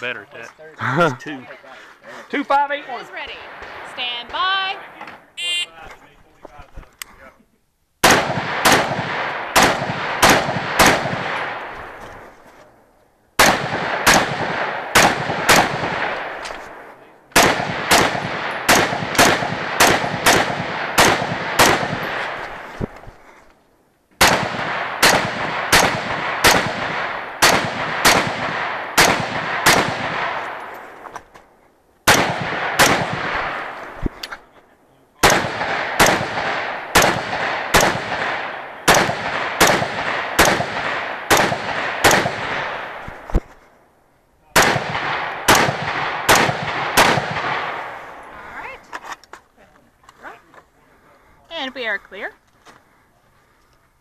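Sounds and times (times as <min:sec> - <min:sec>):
rifle shots with echo: 0:08.0 - 0:12.0, 0:13.4 - 0:22.8, 0:24.2 - 0:30.8, 0:32.0 - 0:34.0, 0:35.2 - 0:43.3, 0:44.5 - 0:48.4.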